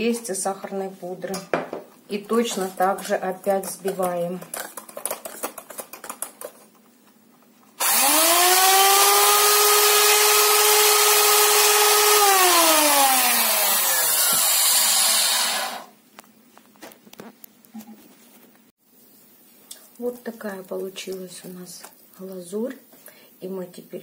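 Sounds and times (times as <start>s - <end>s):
hand mixer motor whining: 7.8s - 15.9s.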